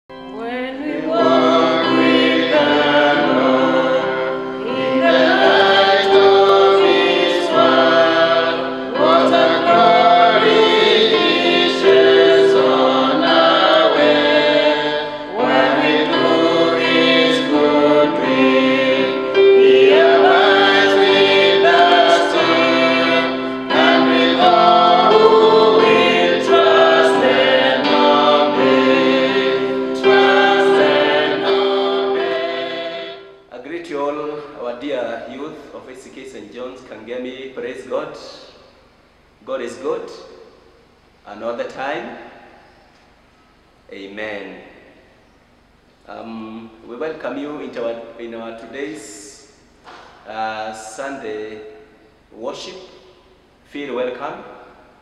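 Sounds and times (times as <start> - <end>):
choir singing gospel music: 0.2 - 33.6.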